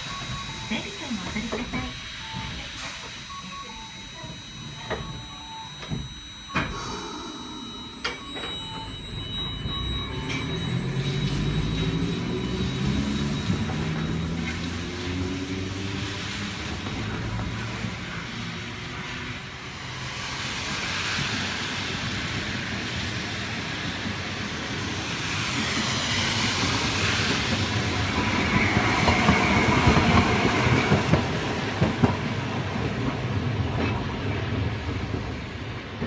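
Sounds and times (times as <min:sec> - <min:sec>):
tram passing on rails: 0:00.0 - 0:36.0
tram whine: 0:00.0 - 0:36.0.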